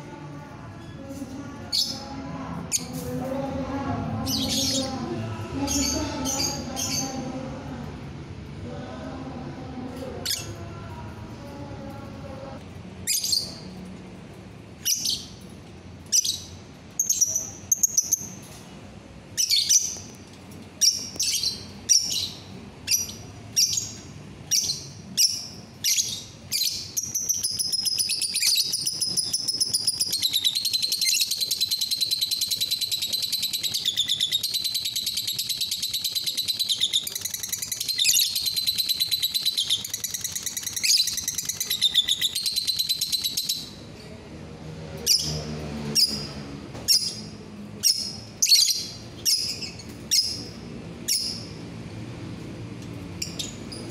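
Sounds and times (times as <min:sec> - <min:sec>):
bird chirping: 0:20.8 - 0:43.8
bird chattering trill: 0:24.7 - 0:43.8.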